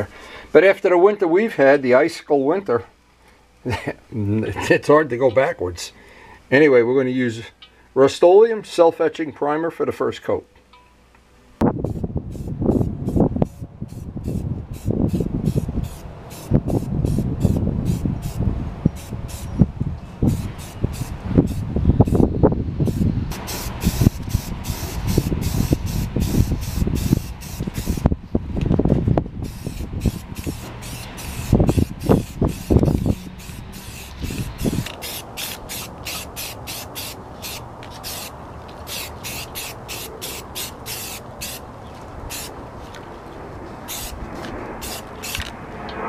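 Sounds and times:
aerosol can hissing: 19.0s - 19.5s, 22.8s - 28.0s, 29.4s - 38.3s, 38.9s - 41.6s, 42.3s - 42.5s, 43.9s - 44.2s, 44.8s - 45.4s
irregular low rumble: 41.7s - 46.0s.

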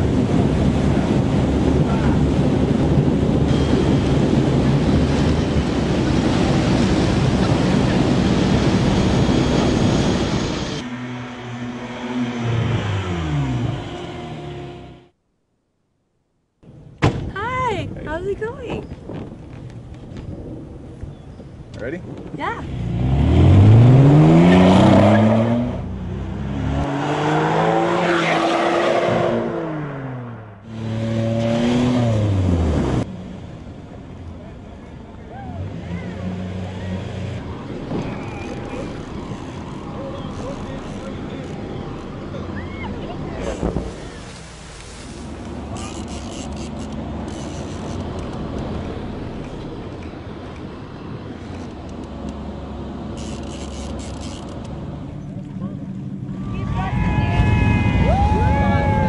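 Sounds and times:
wind buffeting microphone: 0.0s - 10.7s, 17.6s - 22.8s, 41.6s - 44.3s
low engine rumble: 32.2s - 59.0s
rushing water: 41.6s - 51.2s.

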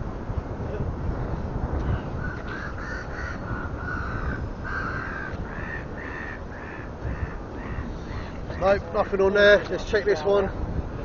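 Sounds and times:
bird harsh calls: 2.1s - 8.6s.

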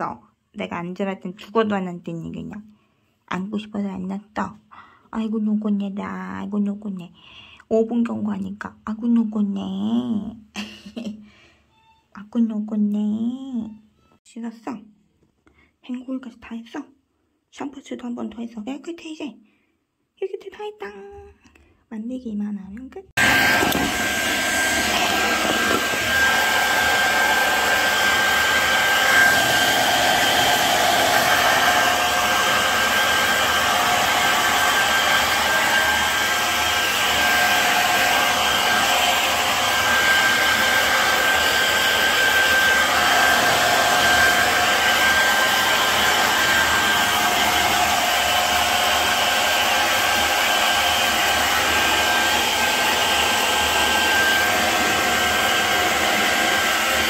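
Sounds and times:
hair dryer running: 23.2s - 57.0s.

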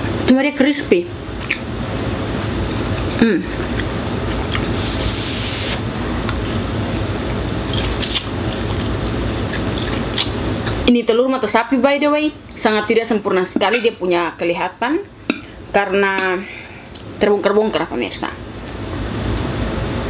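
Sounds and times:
air conditioner whooshing: 0.0s - 20.0s
person slurping noodles: 4.7s - 5.8s.

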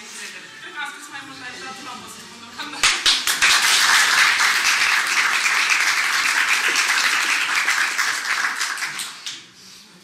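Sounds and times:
group applauding: 2.8s - 9.6s.

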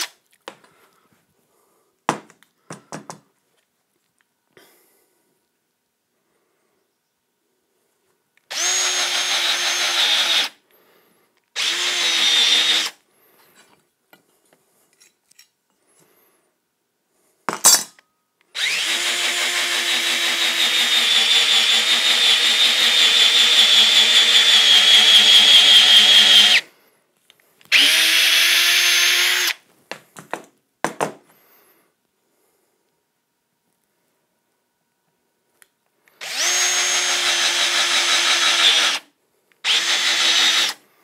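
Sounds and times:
cordless drill whining: 8.5s - 10.6s, 11.6s - 13.0s, 18.5s - 26.7s, 27.6s - 29.6s, 36.1s - 40.8s.

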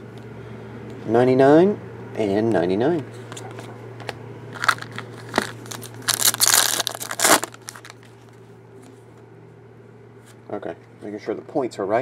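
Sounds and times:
foil wrapper tearing and crinkling: 4.6s - 8.1s.

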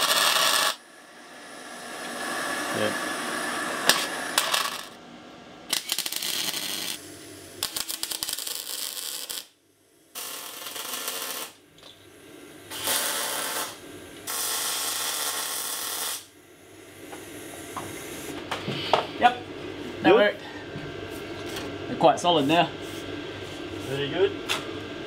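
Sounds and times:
electric arc welding: 0.0s - 0.9s, 3.8s - 5.0s, 5.7s - 11.7s, 12.7s - 16.4s.

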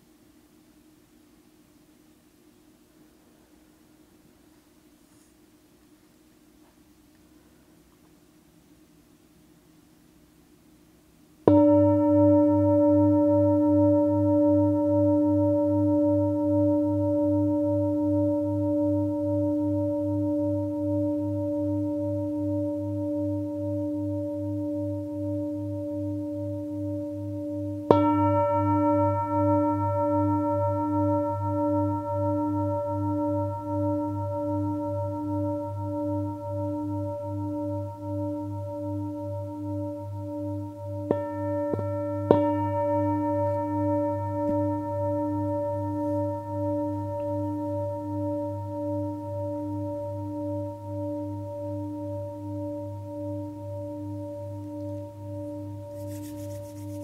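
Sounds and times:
singing bowl strikes: 11.4s - 56.8s
singing bowl ringing: 11.4s - 57.0s.

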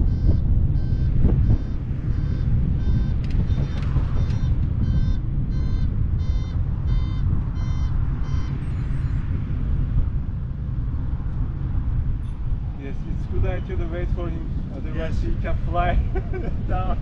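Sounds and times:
high electronic beeps: 0.0s - 9.2s
velomobile rolling rumble: 0.0s - 17.0s.

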